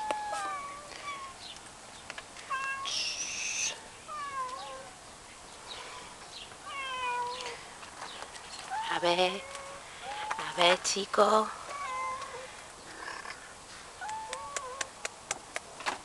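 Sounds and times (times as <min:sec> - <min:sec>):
cats meowing: 0:00.0 - 0:01.4, 0:02.5 - 0:05.0, 0:06.6 - 0:07.6, 0:08.6 - 0:10.7, 0:11.5 - 0:13.4, 0:14.0 - 0:15.0
shrill cat cry: 0:06.7 - 0:07.4, 0:11.7 - 0:12.5, 0:14.0 - 0:14.9.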